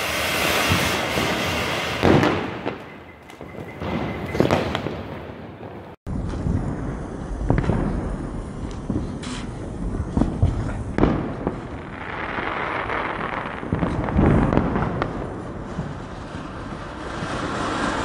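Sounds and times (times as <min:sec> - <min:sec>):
firework fountain hissing: 0:00.0 - 0:02.9, 0:06.8 - 0:11.0, 0:15.6 - 0:18.0.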